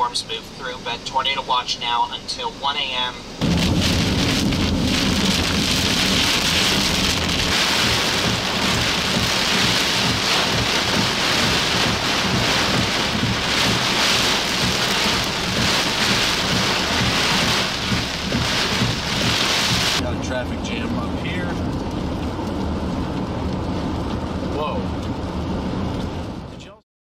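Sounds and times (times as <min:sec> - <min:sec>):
heavy rain on windshield and roof: 0:02.8 - 0:26.8
low rumble: 0:03.3 - 0:26.6.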